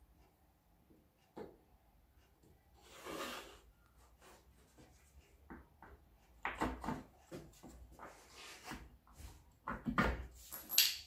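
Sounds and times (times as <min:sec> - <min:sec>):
plywood board sliding and rubbing: 0:02.8 - 0:05.1, 0:07.3 - 0:09.4.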